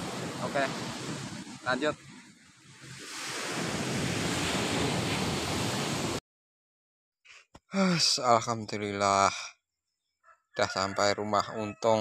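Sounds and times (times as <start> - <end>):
ocean surf rushing: 0.0 - 6.2
wind on microphone: 0.0 - 6.2.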